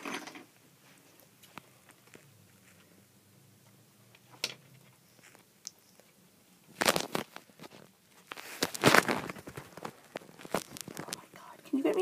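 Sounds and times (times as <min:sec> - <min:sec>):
bag crinkling: 0:06.7 - 0:11.2.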